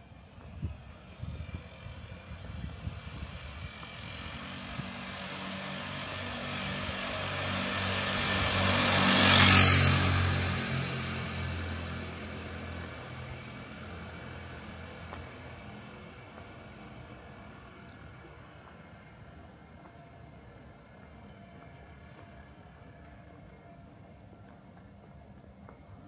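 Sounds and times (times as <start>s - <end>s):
vehicle driving past: 3.2s - 17.9s.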